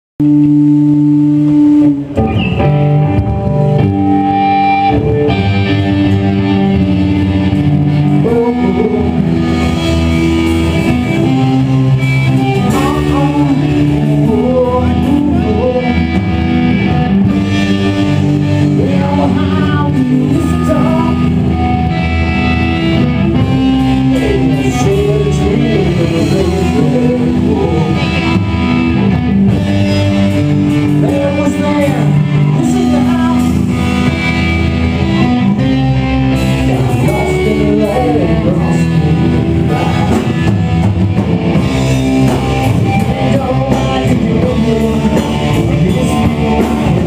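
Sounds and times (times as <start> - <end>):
electric guitar playing chords: 0.2 - 47.0
man singing: 4.7 - 17.8, 18.4 - 22.0, 22.9 - 28.8, 30.7 - 33.9, 36.4 - 40.8, 41.8 - 47.0.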